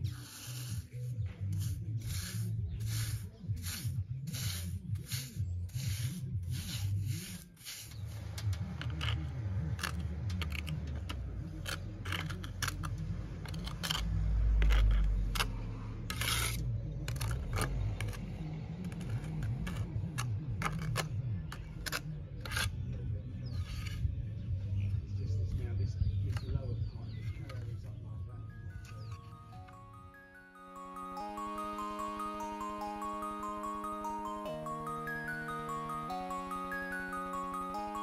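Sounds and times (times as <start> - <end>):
brush scrubbing concrete: 0.0 - 8.2
trowel scraping cement: 0.0 - 22.8.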